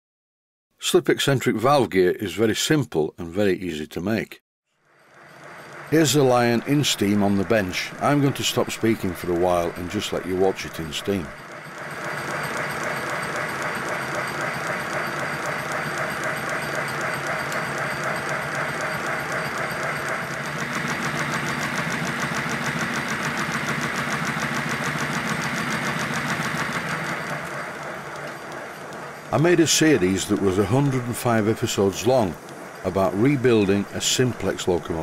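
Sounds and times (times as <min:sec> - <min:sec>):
model locomotive clatter and exhaust beats: 0:04.9 - 0:35.0
steam hissing: 0:05.2 - 0:35.0.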